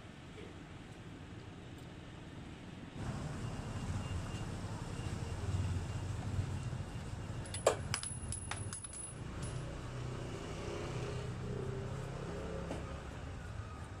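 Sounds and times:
small metallic clicks and clinks: 7.4s - 9.8s.

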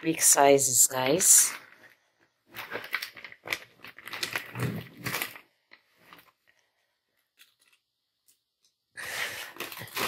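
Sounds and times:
plastic bags crinkling: 1.4s - 6.6s, 9.0s - 10.0s.

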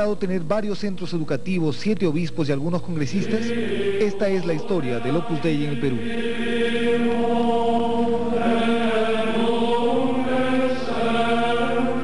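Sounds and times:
sung chant with held notes: 3.0s - 12.0s.

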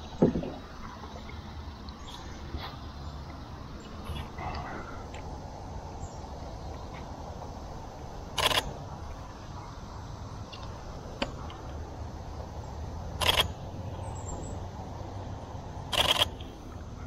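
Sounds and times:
camera shutter clicks: 8.4s - 8.7s, 13.2s - 13.5s, 15.9s - 16.3s.

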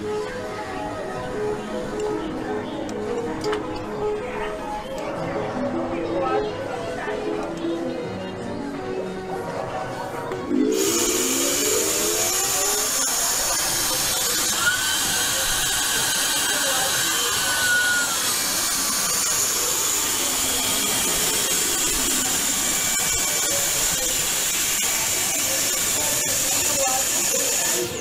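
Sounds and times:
suction blower hissing: 10.5s - 28.0s.

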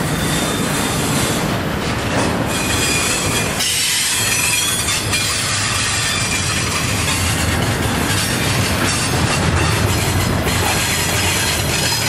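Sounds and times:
steel wheels rumbling on rail: 0.0s - 12.0s
high-pitched wheel squeal: 0.1s - 12.0s.

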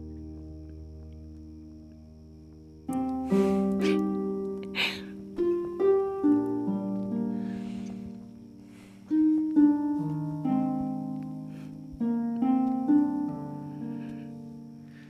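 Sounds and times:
soft instrumental music: 0.0s - 15.0s.

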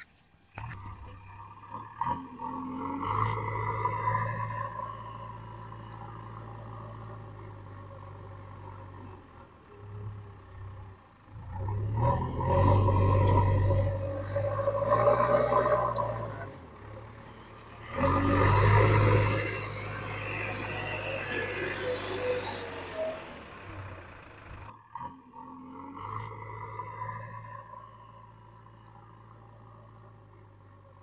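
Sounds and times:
diesel engine running: 12.6s - 24.8s.

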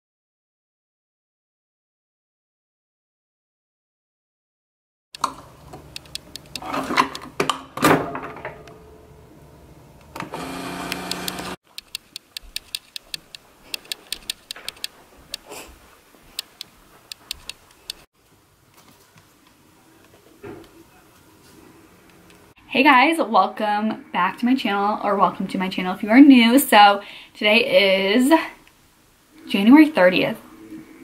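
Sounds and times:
coffee maker humming: 9.3s - 11.6s.

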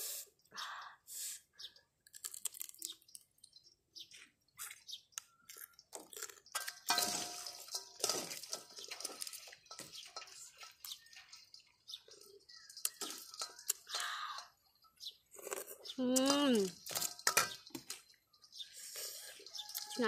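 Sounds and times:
metal spoon clinking on bowl: 6.5s - 14.6s, 16.2s - 17.7s.

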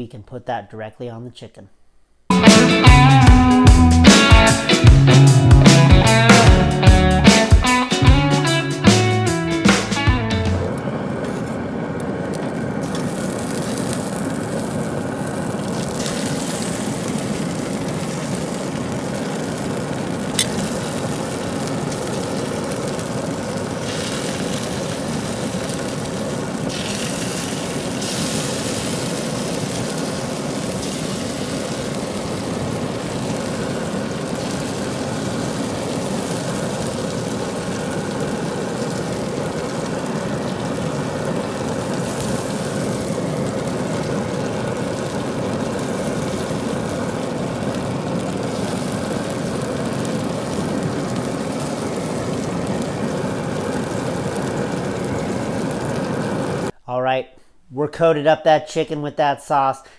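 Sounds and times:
pellet grill fan whirring: 2.3s - 56.7s.

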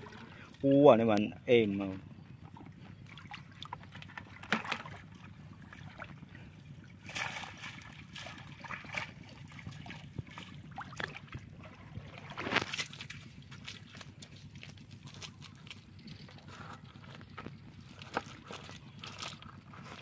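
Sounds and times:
river water splashing: 3.1s - 20.0s.

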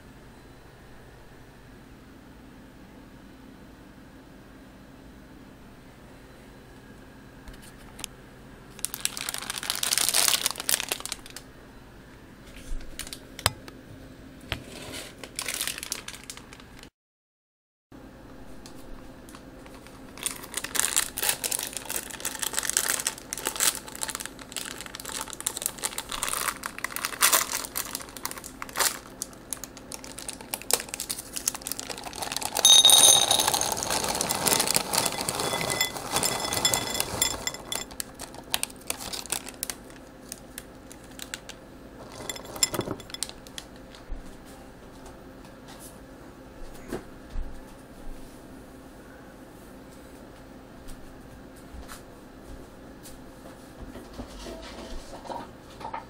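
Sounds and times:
bag crinkling: 8.8s - 11.4s, 15.2s - 16.8s, 19.7s - 44.0s
chocolate chips pouring into bowl: 30.0s - 39.7s, 42.0s - 43.4s
glass bowl ringing: 32.6s - 37.9s, 42.1s - 43.2s.

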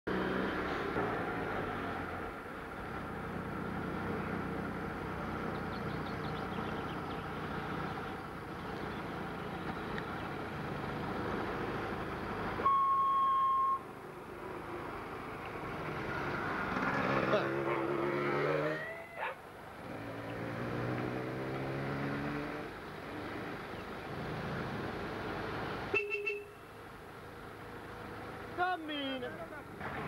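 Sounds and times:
road noise: 0.0s - 30.0s
vehicle engine running: 2.5s - 12.6s
loud high beep: 12.6s - 13.9s.

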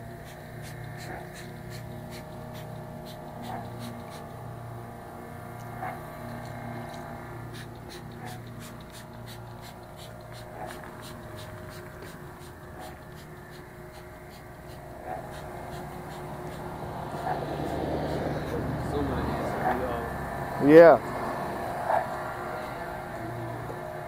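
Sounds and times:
low hum: 0.0s - 24.0s
spray bottle squirting: 7.5s - 16.6s.

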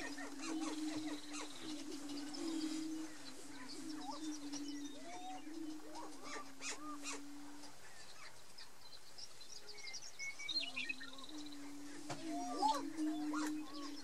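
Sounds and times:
rising and falling whooping calls: 10.8s - 14.0s.

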